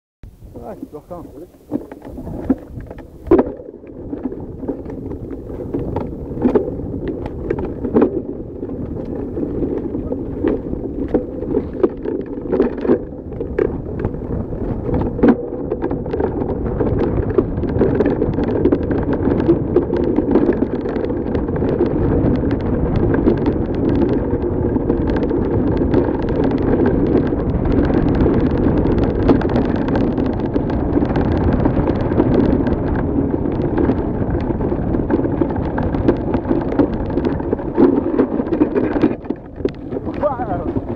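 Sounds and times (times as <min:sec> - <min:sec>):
tyre and wind rush: 0:00.3 - 0:40.9
bike knocks and rattles: 0:00.6 - 0:40.9.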